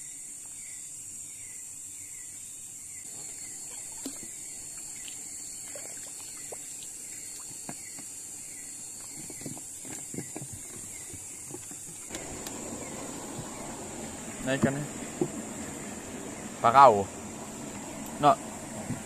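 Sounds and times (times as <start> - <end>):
night insects droning: 0.0 - 19.0
water splashes and drips: 3.2 - 8.1.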